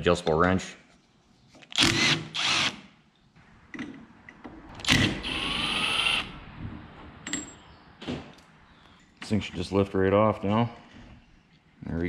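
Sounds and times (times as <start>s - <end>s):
cordless power tool whine: 4.8s - 6.3s.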